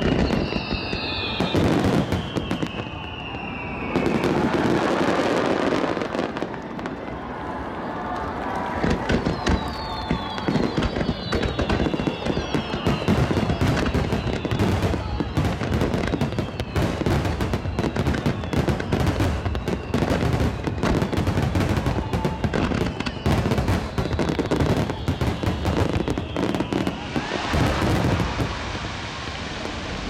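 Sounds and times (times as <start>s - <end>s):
firework hiss: 20.6s - 30.0s.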